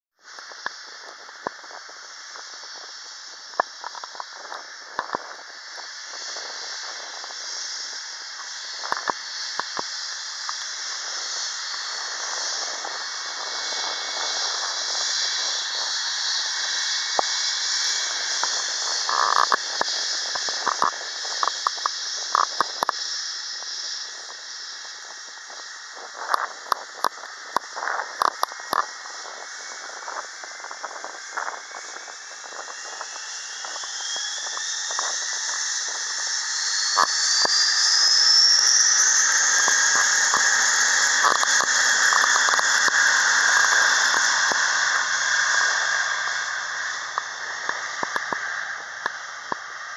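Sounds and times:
jet engines whining: 27.2s - 49.9s.

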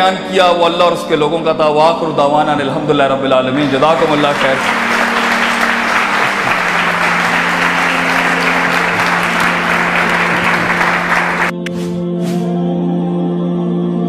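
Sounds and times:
audience applauding: 3.5s - 11.6s.

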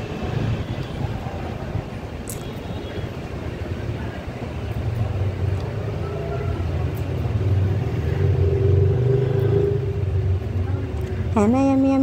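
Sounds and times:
motorbike engine passing by: 7.4s - 10.4s.

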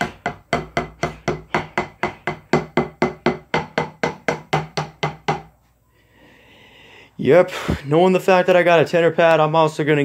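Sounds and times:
drumstick striking practice pad: 0.0s - 5.6s.

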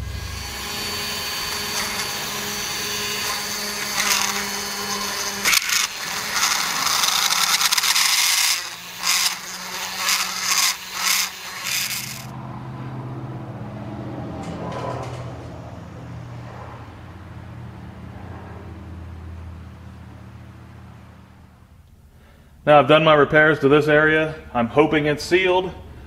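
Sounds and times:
power grinder grinding: 0.0s - 12.4s
low hum: 0.0s - 22.6s.

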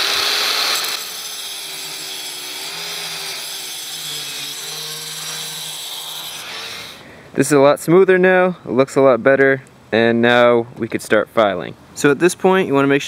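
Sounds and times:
angle grinder grinding steel: 0.0s - 7.0s.

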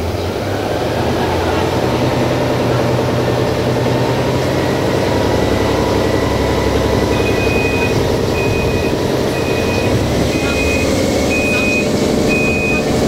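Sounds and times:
diesel train running: 0.0s - 13.0s
high electronic beep: 7.1s - 12.9s.

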